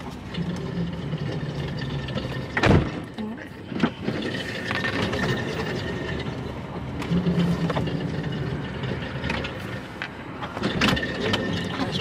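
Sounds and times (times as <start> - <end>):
car cabin vehicle noise: 0.0 - 12.0.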